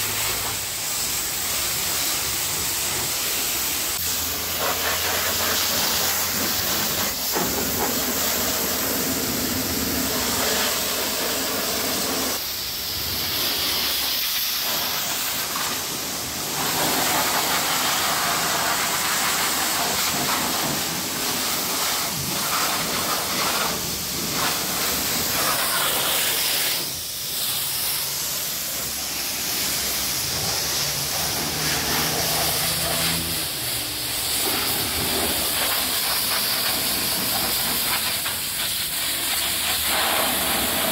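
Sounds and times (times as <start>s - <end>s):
pressure washer jet hissing: 0.0s - 40.9s.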